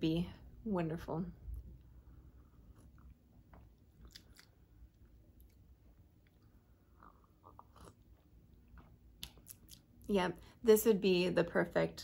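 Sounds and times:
person sipping tea: 4.0 - 5.6, 6.2 - 8.9.

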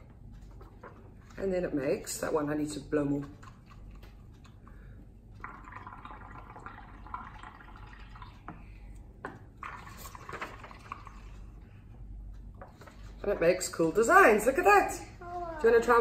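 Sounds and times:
bubbling through straws: 5.4 - 8.7, 9.6 - 11.5.

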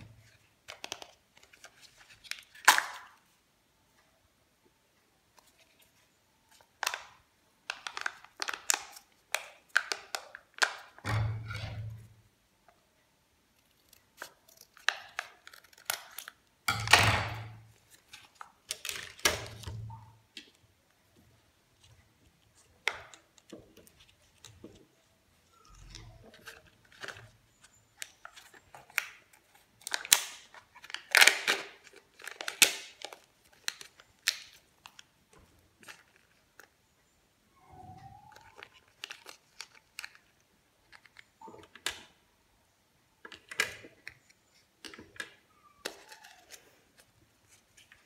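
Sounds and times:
plastic packaging crinkling: 14.2 - 20.0, 22.6 - 35.1, 38.3 - 41.9.

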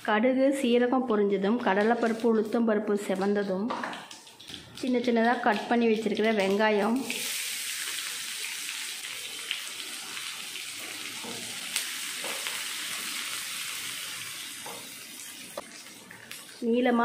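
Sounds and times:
onions sizzling in oil: 6.4 - 16.7.

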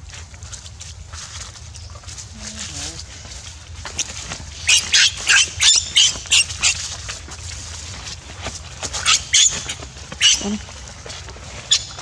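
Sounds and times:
baby monkey shrill screams: 4.6 - 6.8, 9.0 - 10.6.

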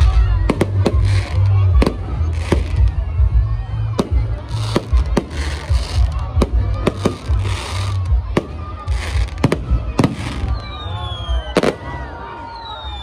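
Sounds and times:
fireworks bangs: 0.0 - 3.1, 3.9 - 12.3
crackling hissing fireworks bursts: 0.0 - 13.0
whistles falling in pitch: 10.1 - 13.0.

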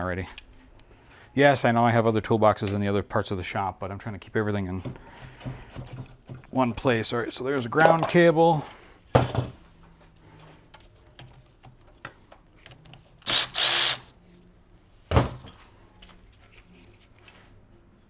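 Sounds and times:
cordless power tool whirring: 13.2 - 14.1.

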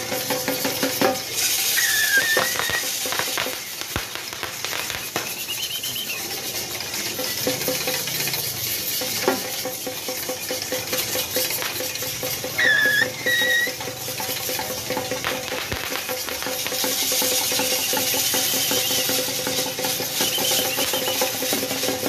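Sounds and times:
crowd noise: 1.2 - 21.4
shrill whistle calls: 1.7 - 3.8, 4.6 - 6.4, 12.6 - 13.8, 17.2 - 21.5.

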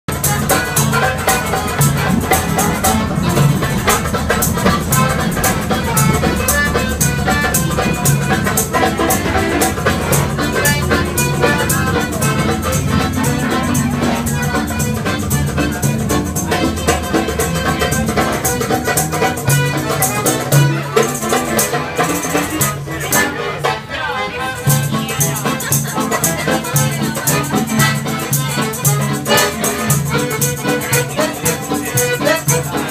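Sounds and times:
accordion-led street music: 0.0 - 32.9
tambourine jingling: 0.1 - 23.3.

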